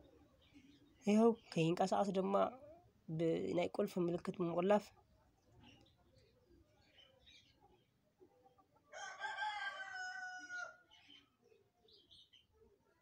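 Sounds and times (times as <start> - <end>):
rooster crowing: 8.9 - 10.9.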